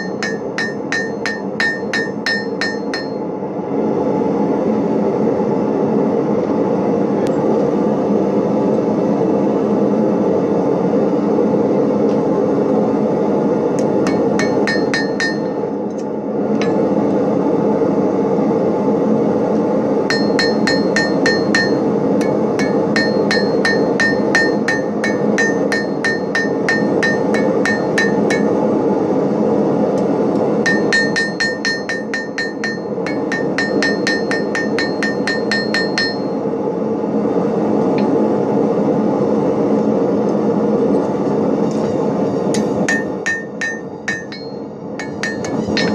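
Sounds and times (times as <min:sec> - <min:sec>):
hammer striking steel on anvil: 0:00.0 - 0:03.3, 0:13.8 - 0:15.6, 0:16.6 - 0:16.9, 0:20.1 - 0:28.6, 0:30.6 - 0:36.4, 0:42.5 - 0:45.9
low rumbling noise: 0:00.0 - 0:45.9.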